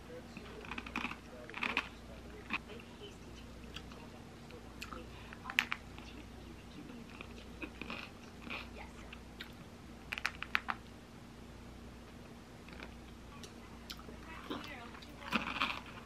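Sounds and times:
chewing and crunching: 0:00.3 - 0:02.6, 0:03.4 - 0:06.2, 0:06.8 - 0:10.9, 0:12.6 - 0:16.0.

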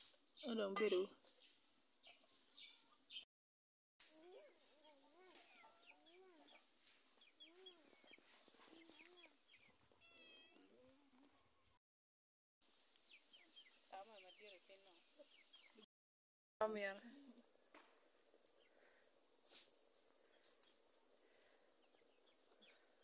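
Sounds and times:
small birds chirping: 0:00.0 - 0:03.3, 0:04.1 - 0:11.8, 0:12.6 - 0:15.9, 0:17.1 - 0:23.0
hen clucking: 0:04.7 - 0:11.5.

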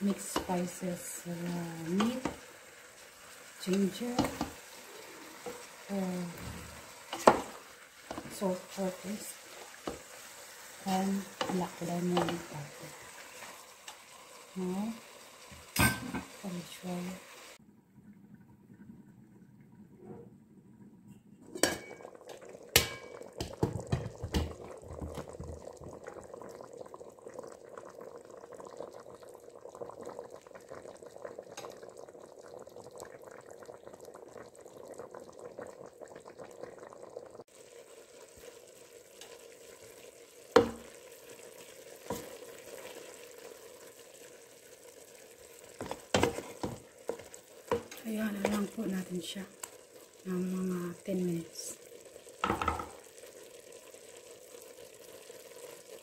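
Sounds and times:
meat sizzling in a pot: 0:00.0 - 0:17.6, 0:21.5 - 0:56.0
wooden spoon stirring a pot: 0:01.8 - 0:02.4, 0:03.6 - 0:13.6, 0:45.6 - 0:49.1
metal pot lid clanking: 0:15.8 - 0:16.4, 0:21.5 - 0:22.1, 0:22.7 - 0:24.5.

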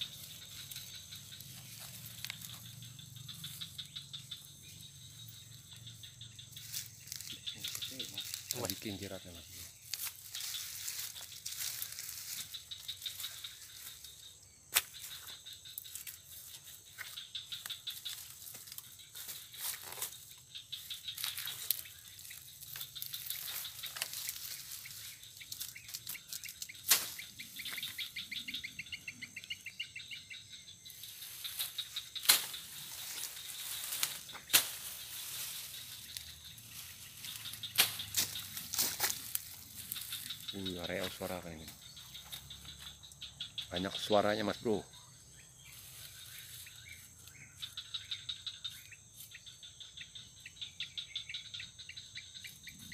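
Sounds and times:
dry stems snapping and rustling: 0:00.0 - 0:02.7, 0:06.6 - 0:09.0, 0:09.7 - 0:14.1, 0:14.7 - 0:28.1, 0:31.2 - 0:42.9
bird trill: 0:00.0 - 0:52.9
birds calling: 0:00.0 - 0:52.9
insects chirring: 0:00.0 - 0:52.9.

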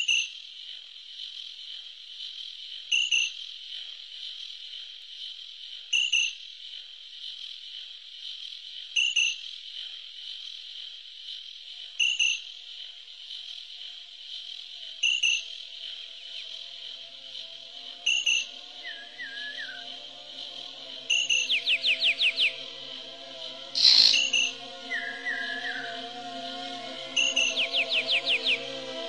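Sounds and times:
high cricket-like buzz: 0:00.0 - 0:29.0
sharp double chirp: 0:23.8 - 0:24.5.

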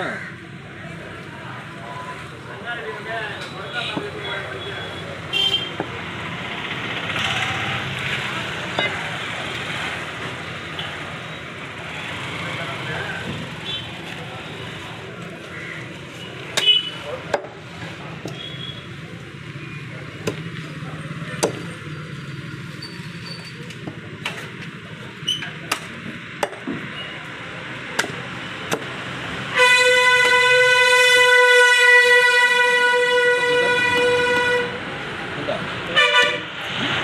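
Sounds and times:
vehicle horn blast: 0:04.6 - 0:05.8, 0:29.5 - 0:34.8, 0:36.0 - 0:36.5
cleaver chopping on wooden block: 0:20.2 - 0:20.5, 0:21.4 - 0:21.7, 0:28.0 - 0:28.9.

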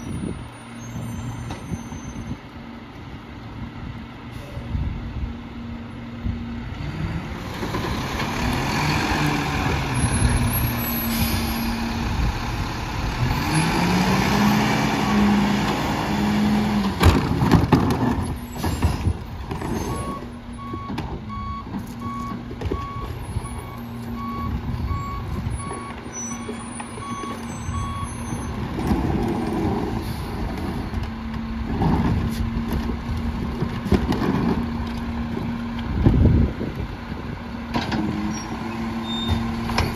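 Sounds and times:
garbage truck engine revving: 0:06.3 - 0:22.0.

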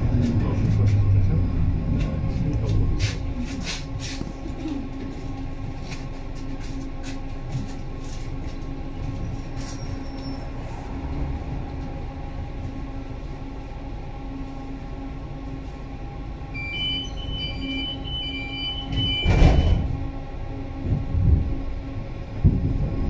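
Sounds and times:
tram interior rumble: 0:00.0 - 0:23.0
two-pitch warning beeps: 0:16.6 - 0:19.8.

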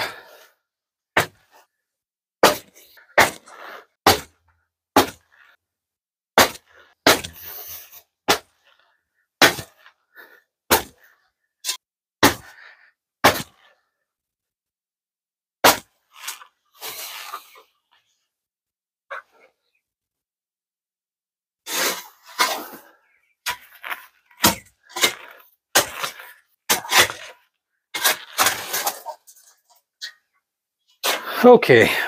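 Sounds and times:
digging tool striking ground: 0:02.4 - 0:04.4, 0:05.0 - 0:05.3, 0:06.4 - 0:08.6, 0:09.4 - 0:09.9, 0:10.7 - 0:12.6, 0:13.2 - 0:13.7, 0:15.6 - 0:17.0, 0:23.4 - 0:29.2.

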